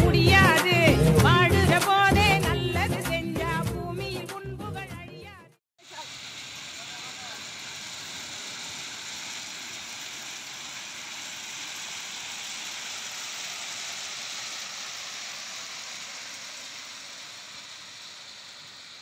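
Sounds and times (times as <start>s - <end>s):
stones pouring from hopper: 5.9s - 19.0s.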